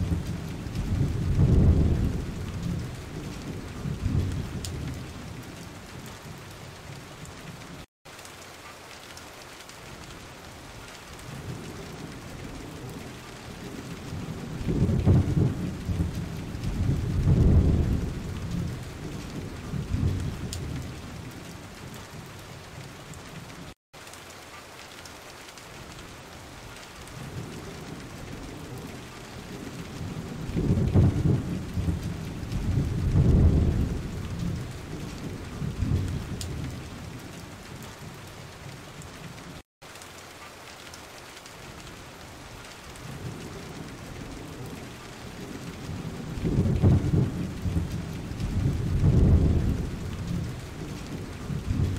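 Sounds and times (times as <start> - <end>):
thunder rolling: 0.0 - 5.3, 11.4 - 21.3, 27.3 - 37.2, 45.4 - 51.9
heavy rain: 0.0 - 51.9.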